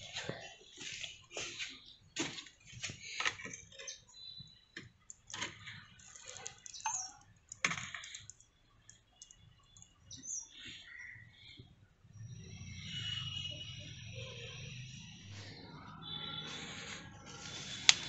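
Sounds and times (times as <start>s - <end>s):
small water splashes: 5.2s - 10.0s.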